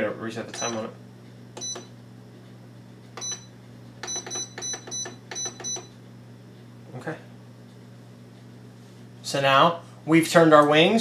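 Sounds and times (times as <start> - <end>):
low steady hum: 0.0 - 11.0
control panel beeping: 0.5 - 0.9, 1.6 - 1.9, 3.2 - 5.9.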